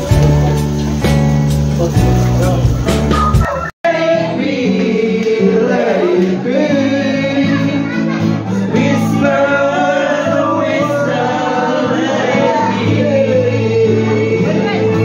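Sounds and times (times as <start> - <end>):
person singing: 2.5 - 15.0.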